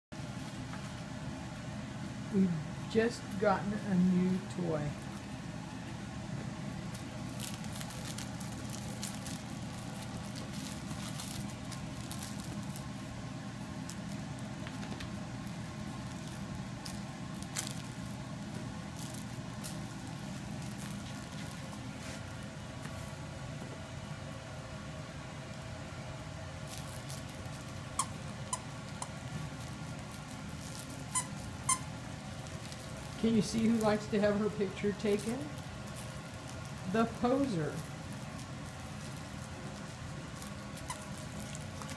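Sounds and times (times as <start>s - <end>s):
low background hum: 0.1s - 41.9s
puppies scuffling on fabric bed: 13.8s - 24.0s, 26.6s - 41.9s
squeaky dog toy squeaking: 31.1s - 31.9s.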